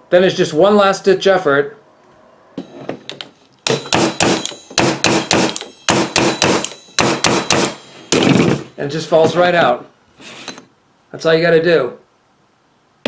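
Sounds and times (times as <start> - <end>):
pliers striking metal drill chuck: 3.6 - 8.3.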